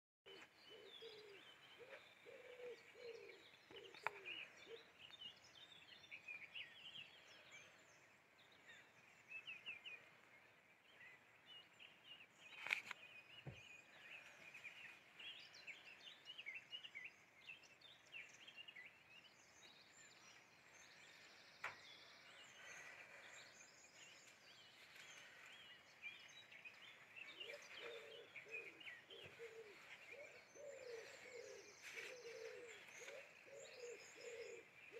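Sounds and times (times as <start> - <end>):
low cooing calls: 0.3 - 5.3, 21.8 - 34.9
small birds chirping: 0.3 - 34.9.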